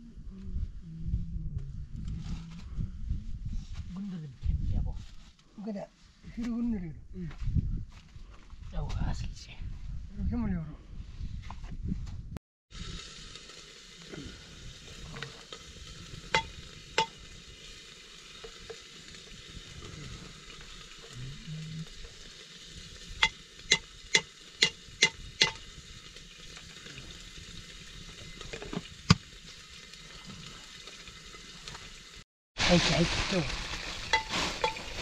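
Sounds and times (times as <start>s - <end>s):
food sizzling in a pan: 12.7s - 35.0s.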